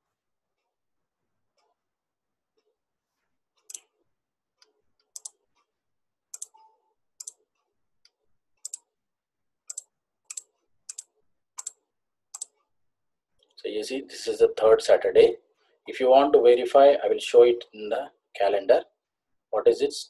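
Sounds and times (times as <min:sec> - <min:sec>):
mouse buttons clicking: 0:04.6 - 0:05.4, 0:06.3 - 0:07.4, 0:08.6 - 0:08.9, 0:09.7 - 0:12.7.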